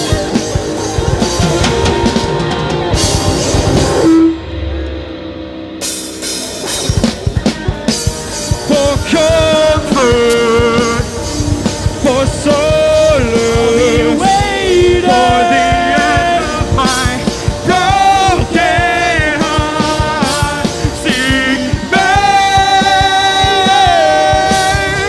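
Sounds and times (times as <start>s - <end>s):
bass guitar: 0.0s - 25.0s
drum kit: 0.0s - 25.0s
electric guitars: 0.0s - 25.0s
man singing long notes: 8.5s - 25.0s.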